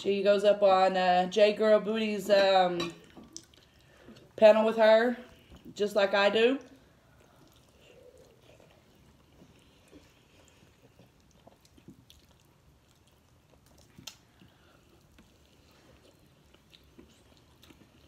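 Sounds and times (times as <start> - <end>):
people chewing: 3.0 - 4.4, 6.6 - 18.0.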